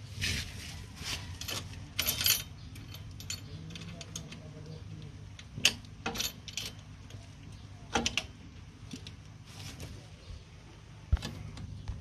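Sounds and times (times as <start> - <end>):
metal clicks of brake hardware: 5.3 - 9.2.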